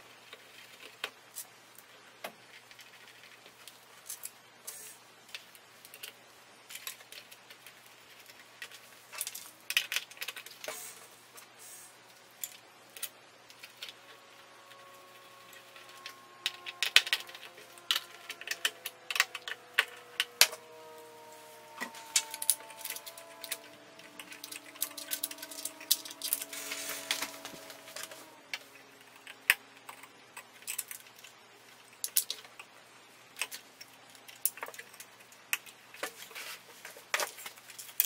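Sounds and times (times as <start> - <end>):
scraping rustle: 17.6 - 28.4.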